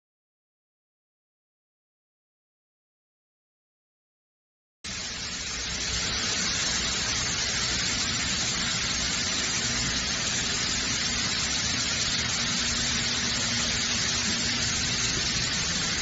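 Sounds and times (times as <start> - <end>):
centrifuge whirring hiss: 4.9 - 16.0.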